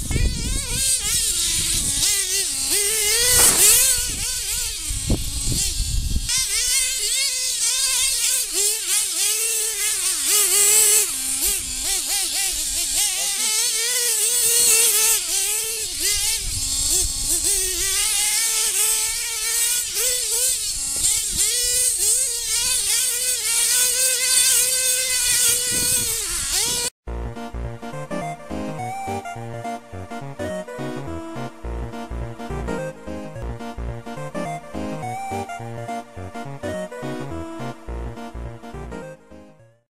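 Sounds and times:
model car engine revving: 0:00.0 - 0:26.9
music: 0:27.1 - 0:39.8.

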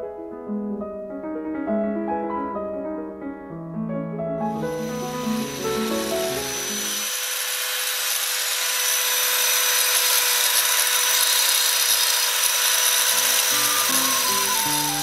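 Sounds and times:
angle grinder whining: 0:04.5 - 0:15.0.

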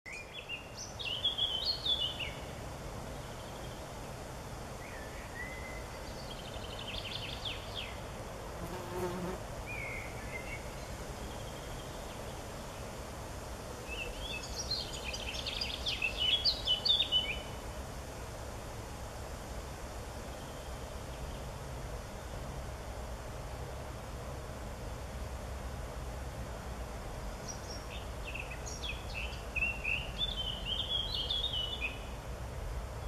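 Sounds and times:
songbirds singing: 0:00.1 - 0:08.1, 0:08.7 - 0:13.0, 0:13.8 - 0:17.6, 0:27.4 - 0:33.0
buzzing of flying insects: 0:06.0 - 0:09.7.

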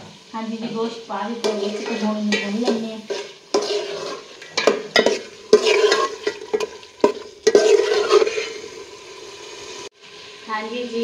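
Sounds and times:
meat sizzling: 0:00.0 - 0:11.0
spoon scraping a pan: 0:00.6 - 0:08.9.

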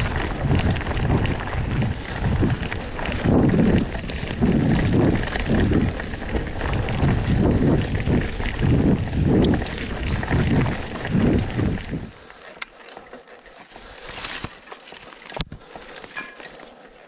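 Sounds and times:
wind buffeting microphone: 0:00.0 - 0:12.3
mountain bike rolling and rattling: 0:00.0 - 0:17.0.

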